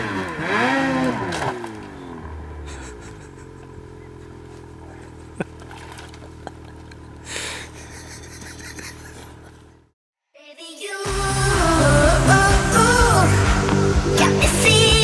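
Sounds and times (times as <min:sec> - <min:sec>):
snowmobile engine idling: 0:01.8 - 0:09.9.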